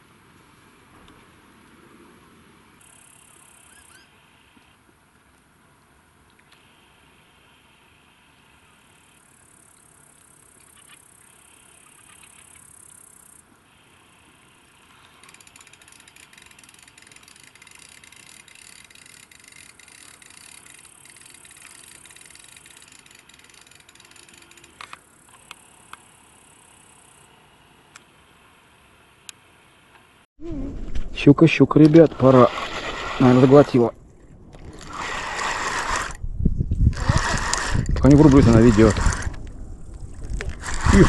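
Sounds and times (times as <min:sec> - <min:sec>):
insects chirring: 0:02.8 - 0:04.6, 0:06.6 - 0:27.7.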